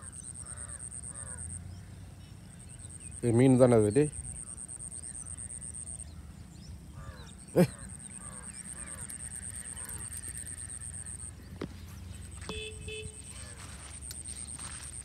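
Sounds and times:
bird calling: 0:00.0 - 0:01.7, 0:02.8 - 0:15.0
high-pitched insect drone: 0:07.6 - 0:15.0.

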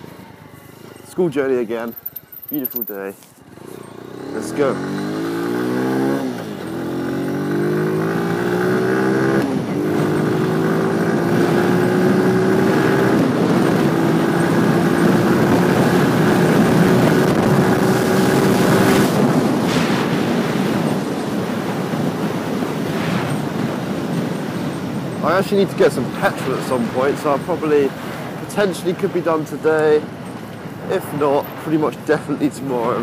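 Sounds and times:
motorcycle engine accelerating: 0:03.5 - 0:25.2
wind rush: 0:09.5 - 0:28.5.

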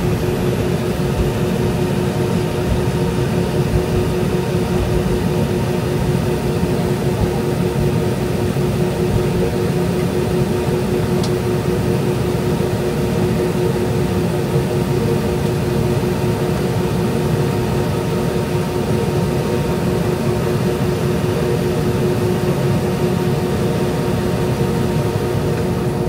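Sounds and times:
jet engine rumble in cabin: 0:00.0 - 0:26.0.

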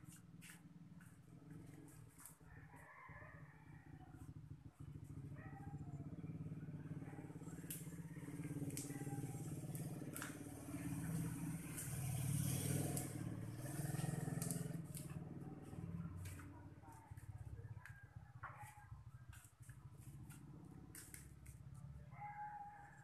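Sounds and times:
small engine running: 0:00.0 - 0:17.8.

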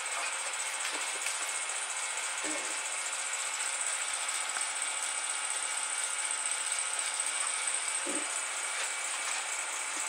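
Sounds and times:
wood lathe whirring: 0:00.0 - 0:10.0
dust collection hose hissing: 0:03.6 - 0:10.0.

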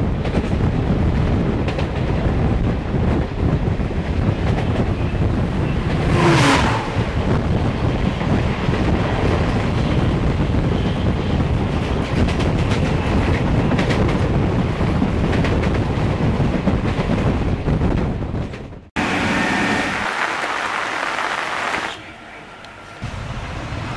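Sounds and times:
rail clicks: 0:00.0 - 0:18.8
train wheels clattering on rails: 0:00.0 - 0:18.9
wind buffeting microphone: 0:00.0 - 0:18.9
train rushing noise: 0:00.0 - 0:23.9.

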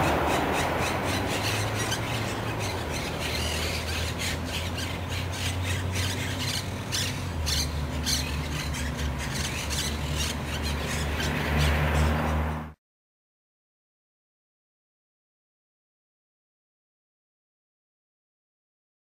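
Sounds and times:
parakeets squawking: 0:00.0 - 0:12.6.

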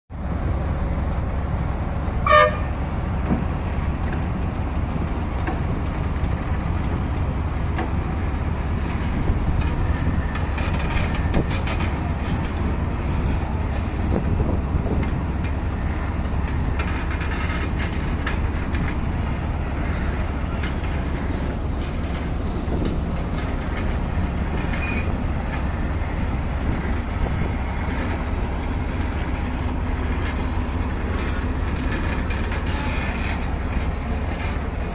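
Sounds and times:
heavy machinery rumbling: 0:00.1 - 0:34.9
horn toot: 0:02.2 - 0:02.8.

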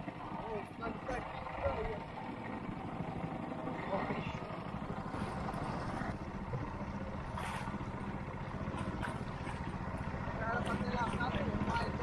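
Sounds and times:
outboard motor droning: 0:00.0 - 0:12.0.

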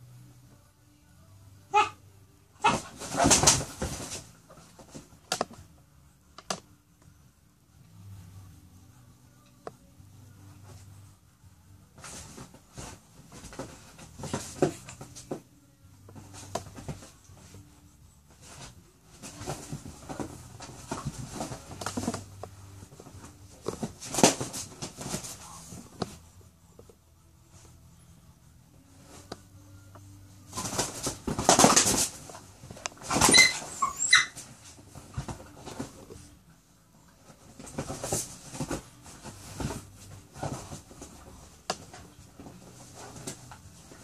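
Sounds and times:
scuffling and scratching: 0:02.6 - 0:05.5, 0:11.9 - 0:26.4, 0:30.3 - 0:36.4, 0:37.1 - 0:44.0.

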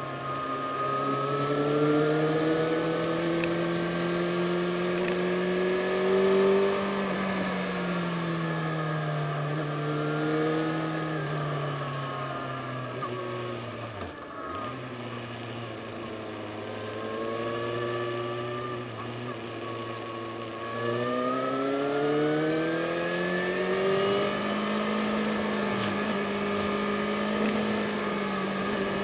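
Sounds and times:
motorcycle engine running: 0:00.0 - 0:29.0
wind and road noise: 0:00.0 - 0:29.0.

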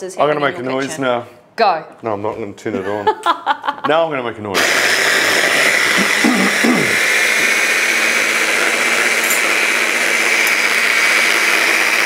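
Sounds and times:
hand blender whining: 0:04.6 - 0:12.0.

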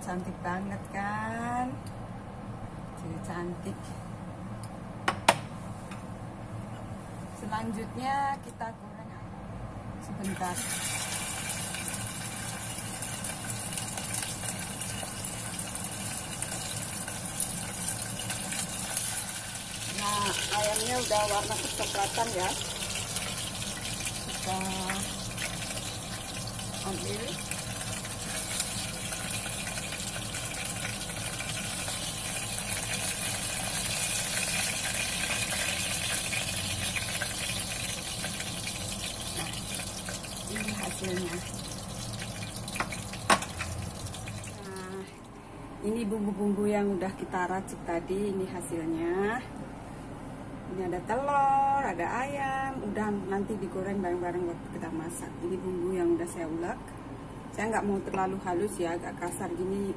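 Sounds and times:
chicken sizzling in hot oil: 0:10.3 - 0:44.8.

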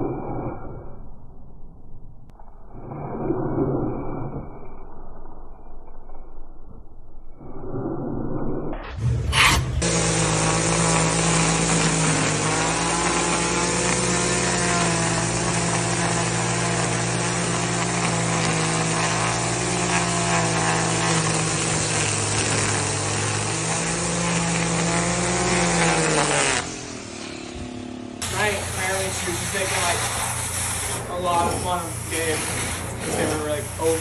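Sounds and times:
string trimmer running: 0:09.6 - 0:34.0.

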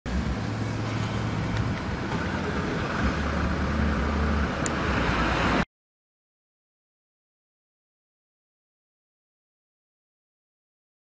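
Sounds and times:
bus diesel engine idling: 0:00.1 - 0:05.6.

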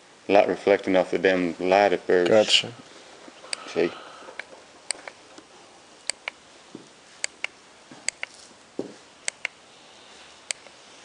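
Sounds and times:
infrared thermometer ticks: 0:06.0 - 0:06.4, 0:07.2 - 0:08.4, 0:09.2 - 0:09.6
soft handling thumps: 0:08.8 - 0:09.1.

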